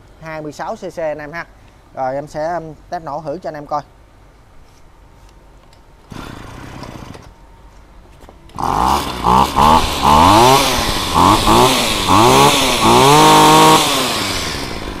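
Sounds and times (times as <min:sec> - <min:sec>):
brush cutter engine revving: 0:06.1 - 0:07.2, 0:08.5 - 0:15.0.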